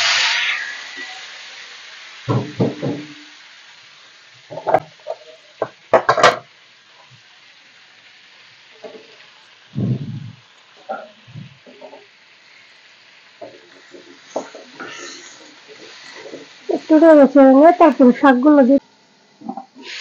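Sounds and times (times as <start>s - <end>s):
food sizzling in hot oil: 0.0s - 20.0s
knocks and clatters: 4.5s - 6.5s.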